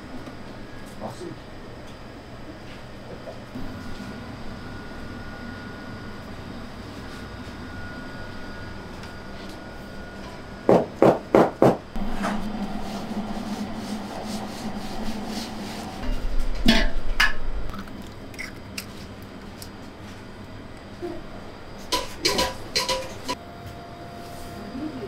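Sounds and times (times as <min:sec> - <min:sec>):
flour rubbed through sieve: 0:12.4 - 0:16.2.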